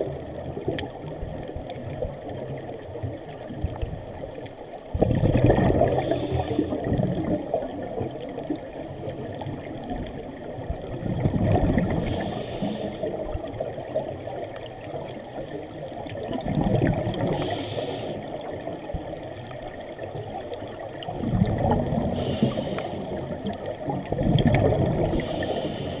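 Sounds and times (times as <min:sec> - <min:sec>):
underwater rumble: 0:00.0 - 0:26.0
bubbling regulator breaths: 0:05.0 - 0:07.8, 0:11.0 - 0:13.2, 0:16.4 - 0:18.5, 0:21.2 - 0:23.5, 0:24.1 - 0:26.0.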